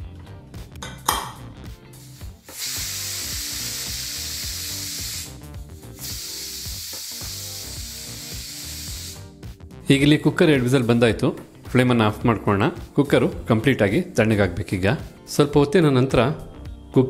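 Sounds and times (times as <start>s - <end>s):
pressure cooker whistling: 2.5s - 5.4s, 6.0s - 9.2s.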